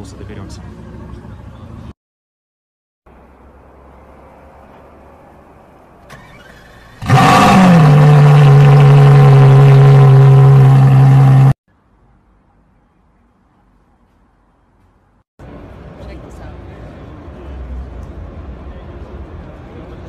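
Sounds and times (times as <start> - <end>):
car engine starting and idling: 5.9 - 11.5.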